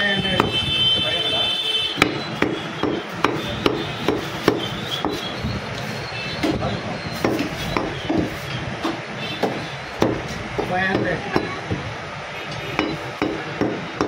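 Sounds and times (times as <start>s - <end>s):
knife chopping meat on wood: 2.0s - 5.2s, 7.2s - 11.5s, 12.8s - 14.0s.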